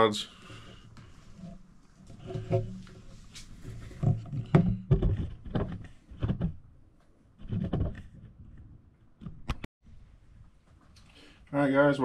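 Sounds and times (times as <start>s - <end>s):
irregular knocks and thumps: 1.0s - 6.8s, 7.4s - 9.7s.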